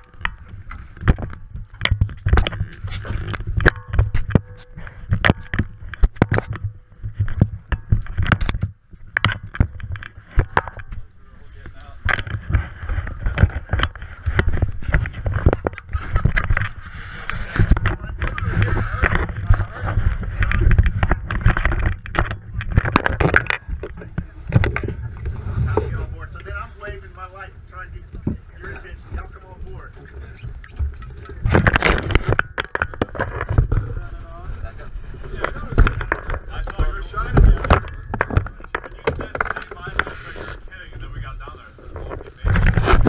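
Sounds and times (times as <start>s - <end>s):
low steady rumble: 0.0s - 42.7s
low rumble: 12.2s - 30.2s.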